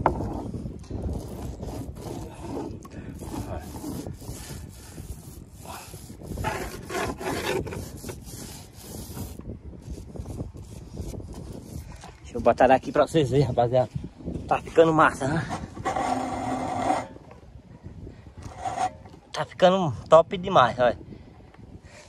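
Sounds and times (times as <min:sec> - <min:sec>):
paint roller rubbing on hull: 0:00.0 - 0:12.4, 0:15.3 - 0:17.2.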